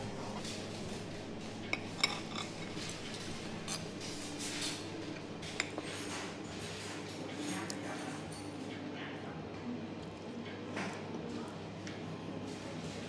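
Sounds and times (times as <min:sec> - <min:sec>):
cutlery clinking on plate: 0:01.7 - 0:04.8.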